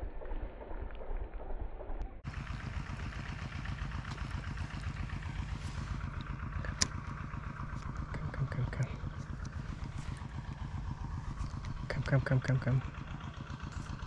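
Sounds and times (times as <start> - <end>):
small engine humming: 2.2 - 14.0.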